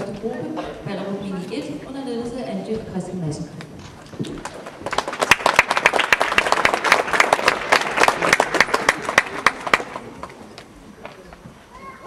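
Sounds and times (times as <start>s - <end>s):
audience applause: 4.4s - 10.5s.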